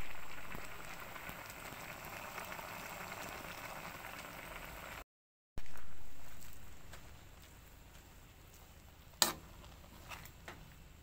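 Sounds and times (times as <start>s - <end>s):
broth boiling in a wok: 0.0s - 5.0s, 5.6s - 11.0s.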